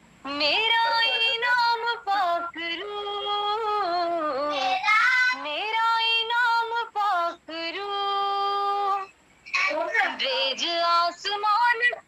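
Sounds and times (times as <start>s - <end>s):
woman singing a hymn solo: 0.3s - 9.1s, 9.7s - 12.0s.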